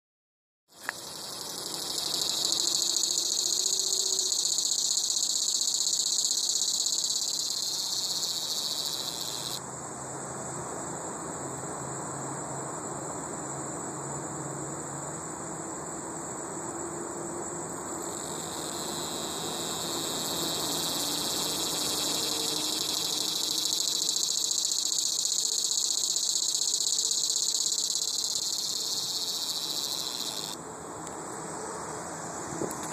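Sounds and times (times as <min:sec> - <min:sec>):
cicada buzzing: 0:00.7 - 0:09.6, 0:17.8 - 0:30.7
faint steady high tone: 0:00.8 - 0:09.6, 0:18.0 - 0:30.6.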